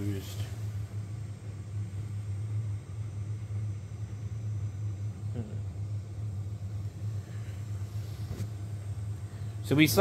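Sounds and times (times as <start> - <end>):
three d printer humming: 0.0 - 10.0.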